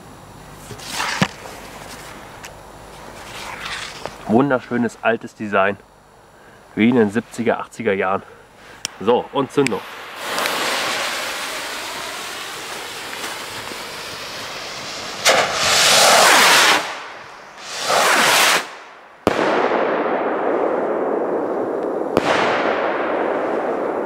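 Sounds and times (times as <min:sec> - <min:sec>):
fuse hissing: 0:00.7 - 0:19.0
rocket whooshing: 0:08.9 - 0:24.0
firework bang: 0:09.6 - 0:24.0.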